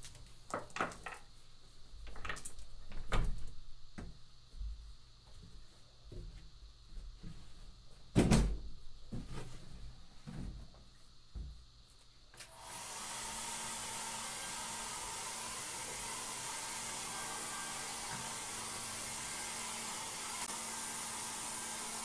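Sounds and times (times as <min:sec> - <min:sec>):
steady airy hiss: 0:08.8 - 0:22.0.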